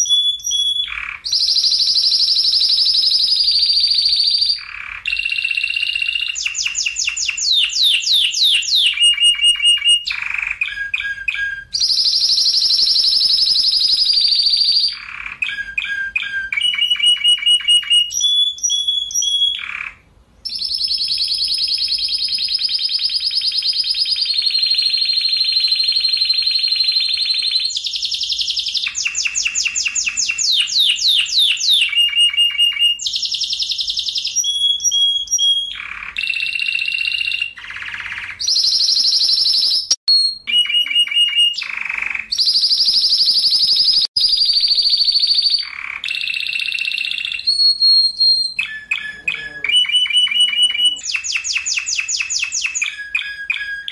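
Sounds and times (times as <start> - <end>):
canary singing trills: 0.0 - 53.9.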